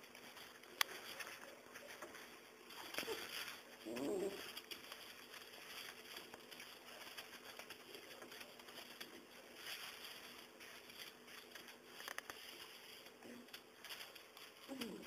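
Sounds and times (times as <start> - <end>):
puppies rustling in straw: 0.0 - 15.0.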